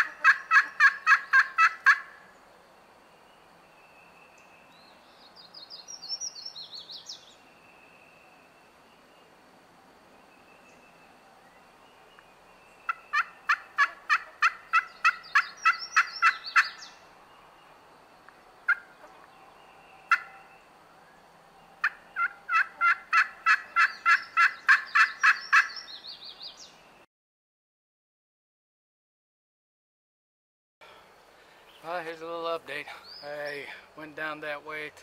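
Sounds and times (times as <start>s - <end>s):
turkey call yelping: 0.0s - 2.2s, 12.9s - 16.9s, 18.7s - 19.2s, 20.1s - 20.5s, 21.8s - 25.9s.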